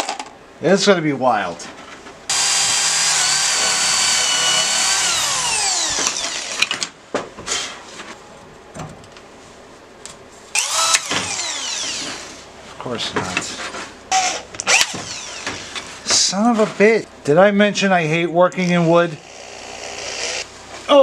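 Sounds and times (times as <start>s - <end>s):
cordless drill boring into wood: 2.3s - 6.7s, 10.6s - 12.2s, 14.1s - 15.8s, 19.2s - 20.5s.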